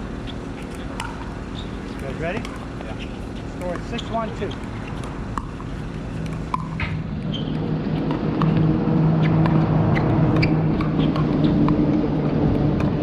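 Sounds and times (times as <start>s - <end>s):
steady low hum: 0.0s - 13.0s
shoe squeaks: 1.5s - 5.8s, 6.6s - 8.1s, 9.1s - 11.7s
paddles hitting plastic ball: 3.6s - 7.0s.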